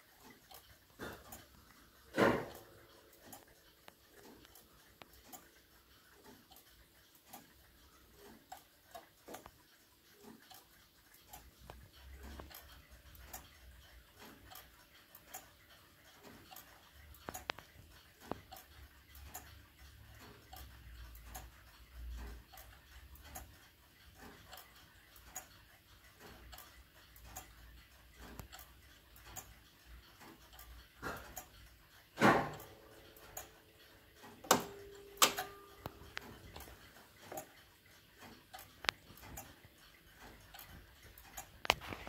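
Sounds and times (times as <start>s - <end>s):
loud clock clicks: 0.0s - 25.5s, 28.1s - 41.5s
clock ticking: 0.0s - 42.0s.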